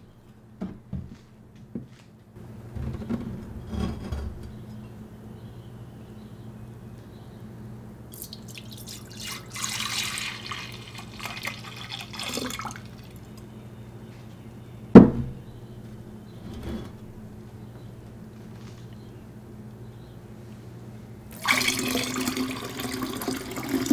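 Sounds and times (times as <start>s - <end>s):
liquid pouring into a pitcher: 8.1s - 13.4s, 21.3s - 23.9s
container knocking on counter: 15.0s - 15.4s.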